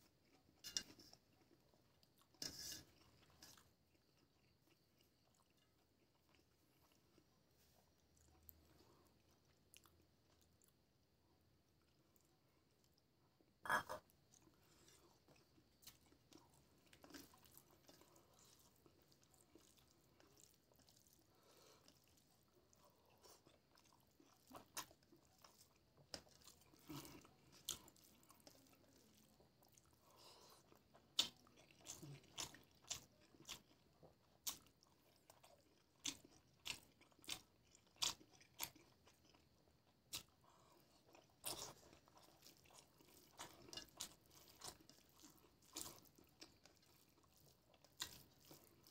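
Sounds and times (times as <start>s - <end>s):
chewing: 0.0s - 48.9s
hand mixing food squishing: 14.4s - 48.9s.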